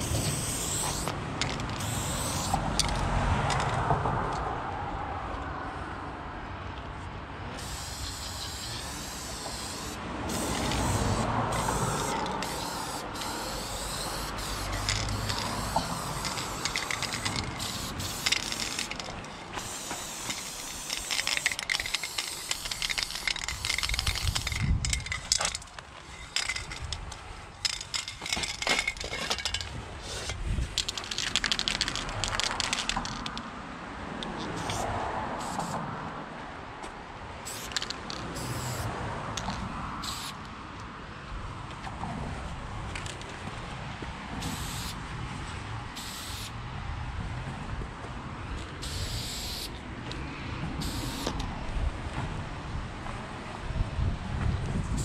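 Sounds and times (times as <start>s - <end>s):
aerosol spray paint hissing: 0.0s - 1.2s, 1.8s - 2.7s, 7.6s - 24.6s, 34.6s - 34.8s, 35.4s - 35.8s, 37.4s - 37.8s, 38.4s - 38.9s, 40.0s - 40.4s, 44.4s - 45.0s, 46.0s - 46.5s, 48.8s - 49.7s, 50.8s - 51.4s.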